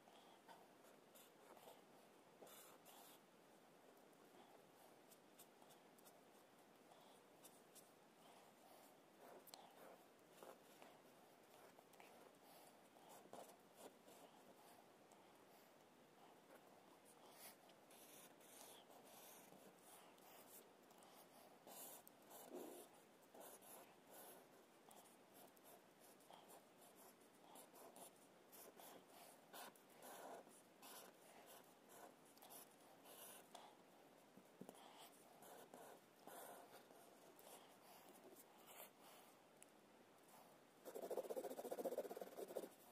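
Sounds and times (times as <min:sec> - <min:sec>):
marker drawing on paper: 0:00.4 - 0:03.2, 0:07.4 - 0:14.7, 0:16.5 - 0:33.7, 0:34.6 - 0:39.3, 0:40.8 - 0:42.8.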